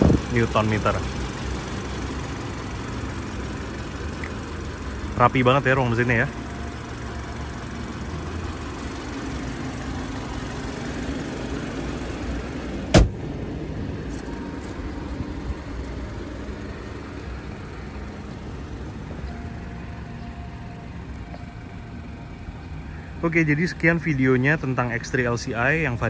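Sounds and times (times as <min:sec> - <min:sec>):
car bonnet slamming: 0:12.9 - 0:13.3.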